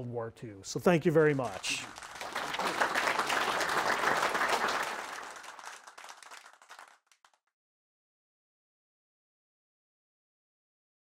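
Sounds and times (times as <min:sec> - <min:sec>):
audience applauding: 0:01.1 - 0:07.4.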